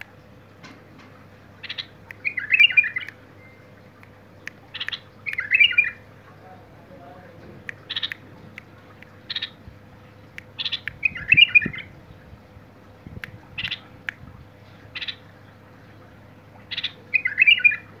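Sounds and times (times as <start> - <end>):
bird call notes: 1.6 - 6.0, 10.4 - 11.9, 16.7 - 18.0
bubbly warbled bird phrase: 4.7 - 6.0, 7.7 - 8.2, 10.6 - 12.0.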